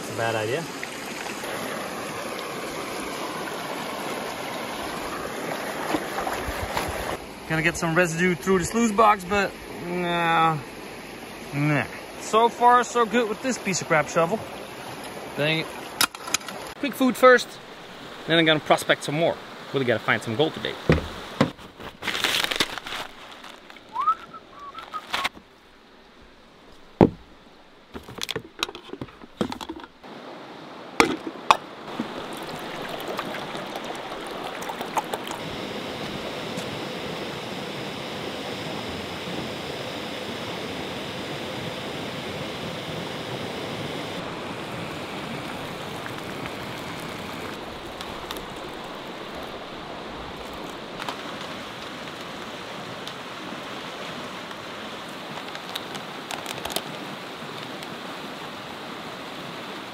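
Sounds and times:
meal pouch crinkling: 22.0s - 24.0s.

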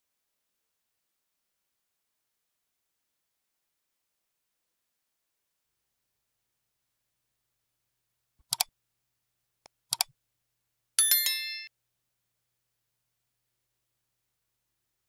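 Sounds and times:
short bright bell ding: 11.0s - 11.7s.

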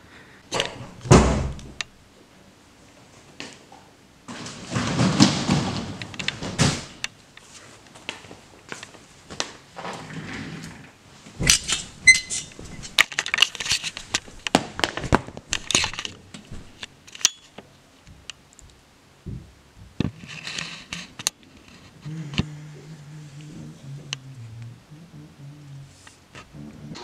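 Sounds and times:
crinkling: 2.9s - 24.8s
clothes rustling: 11.1s - 22.6s
high-pitched tone: 26.6s - 27.0s.

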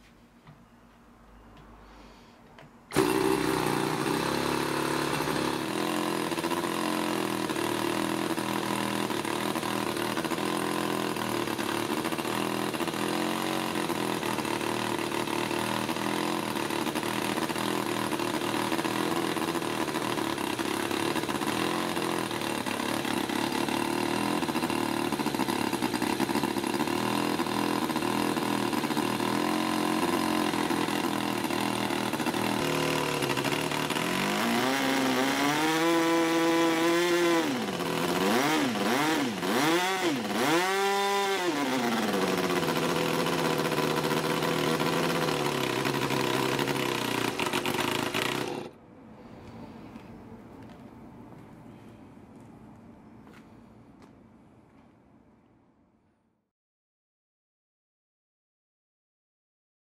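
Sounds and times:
model rotary engine running: 2.9s - 48.8s.

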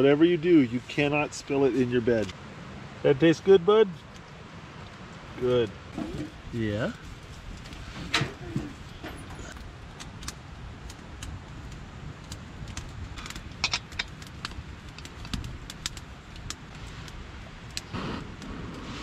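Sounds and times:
wood fire crackling: 0.0s - 19.0s
small metal clicks and clinks: 13.2s - 14.2s.

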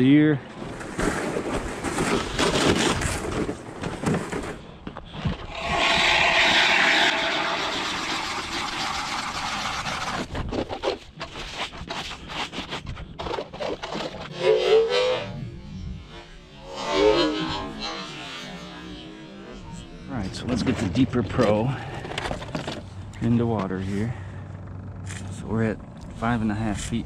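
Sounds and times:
ice auger grinding through ice: 5.4s - 15.4s
short knocks and scrapes: 8.7s - 15.2s.

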